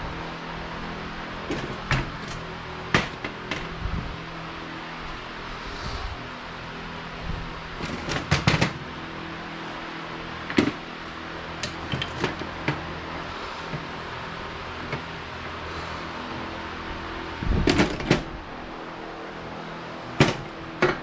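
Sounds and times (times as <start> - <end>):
background hum: 0.0 - 21.0
metal parts clinking and knocking: 1.5 - 3.7, 7.8 - 8.8, 10.4 - 10.9, 11.5 - 12.9, 17.6 - 18.3, 20.2 - 21.0.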